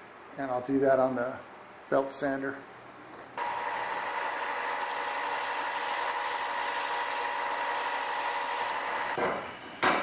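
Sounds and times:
belt sander grinding steel tube: 0:03.4 - 0:09.2.

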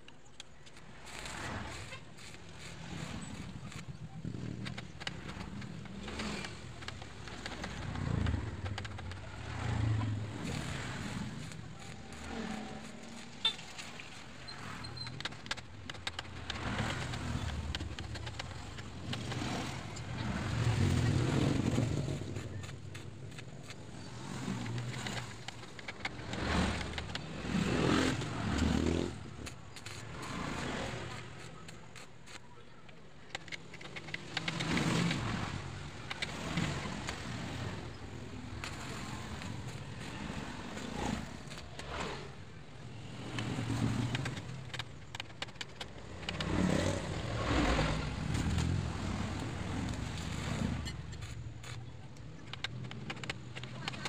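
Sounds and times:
arc welding crackling: 0:00.1 - 0:32.4
engine-like rumble: 0:00.2 - 0:54.0.

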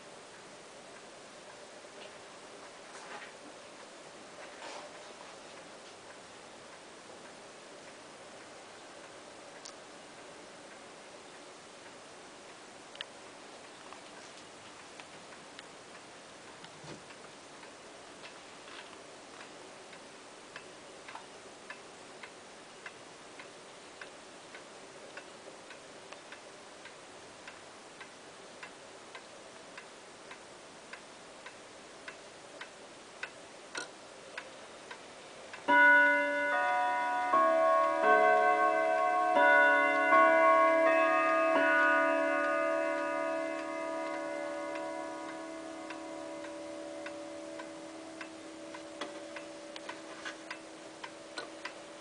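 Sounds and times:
pendulum clock ticking: 0:19.1 - 0:52.0
clock chime melody: 0:35.7 - 0:52.0.

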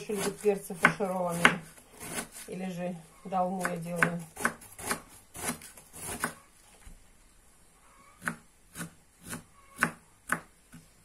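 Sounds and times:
knife slicing cabbage: 0:00.0 - 0:02.6, 0:03.5 - 0:06.4, 0:08.2 - 0:10.9.

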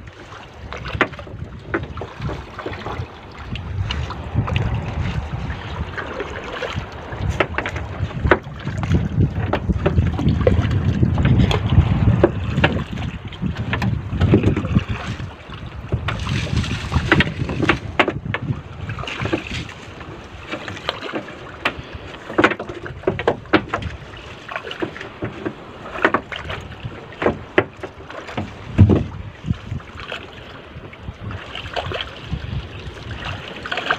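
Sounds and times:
wind rumbling on microphone: 0:00.0 - 0:33.9
wet net knocking on boat: 0:00.8 - 0:03.1, 0:07.2 - 0:15.0, 0:15.9 - 0:19.7, 0:20.4 - 0:24.0, 0:24.7 - 0:29.2.

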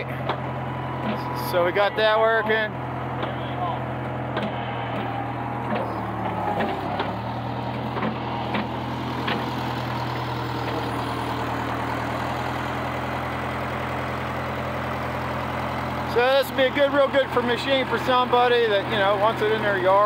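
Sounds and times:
backhoe engine running: 0:00.0 - 0:20.0
sharp knocks: 0:04.3 - 0:09.6.

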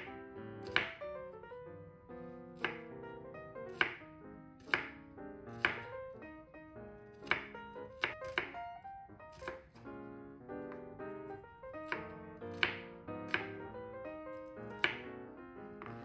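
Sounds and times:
knife chopping on wooden board: 0:00.0 - 0:01.0, 0:02.6 - 0:02.9, 0:03.7 - 0:04.0, 0:04.6 - 0:06.0, 0:07.2 - 0:08.6, 0:09.3 - 0:09.9, 0:11.8 - 0:13.6, 0:14.4 - 0:15.1, 0:15.8 - 0:16.0
background music: 0:00.0 - 0:16.0.

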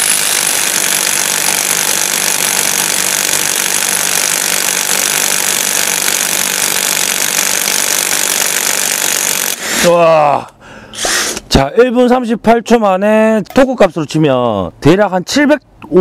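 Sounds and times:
impact wrench hammering: 0:00.0 - 0:09.6.

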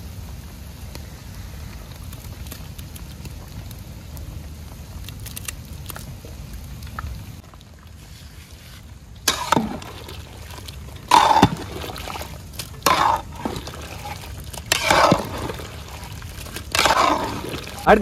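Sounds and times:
thick curry splashing in pot: 0:09.2 - 0:17.9.

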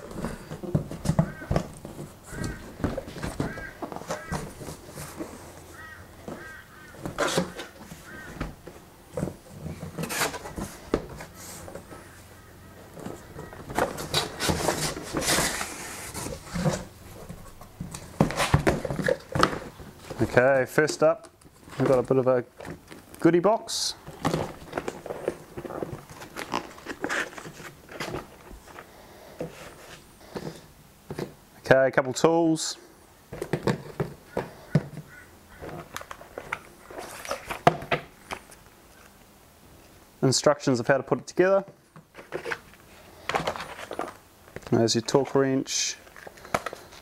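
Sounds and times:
cardboard box scraping and rustling: 0:00.0 - 0:12.2, 0:13.0 - 0:20.4, 0:24.1 - 0:30.6, 0:35.6 - 0:37.8
cardboard box flaps scraping: 0:13.2 - 0:20.2.

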